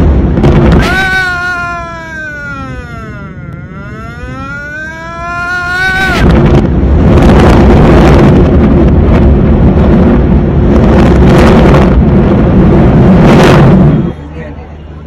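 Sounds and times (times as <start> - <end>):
demolition blast rumble: 0.0 - 0.8, 6.2 - 13.9
warning siren wail: 0.8 - 6.5
wind buffeting microphone: 5.3 - 14.1.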